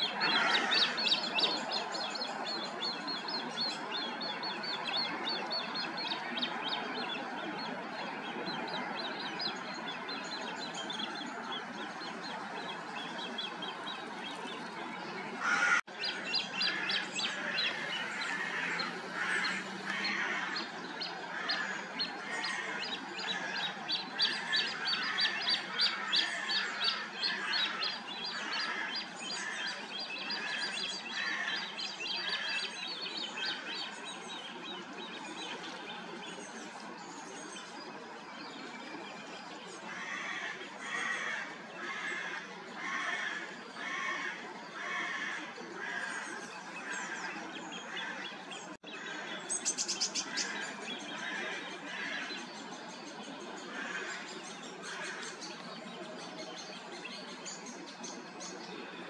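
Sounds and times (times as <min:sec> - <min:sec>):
birds chirping and singing: 0:00.0 - 0:59.0.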